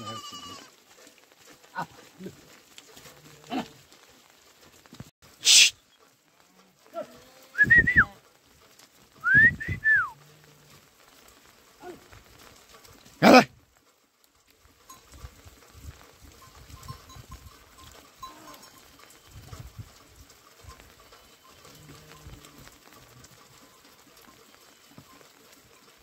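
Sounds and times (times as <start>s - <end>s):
goats calling: 0.0s - 4.8s.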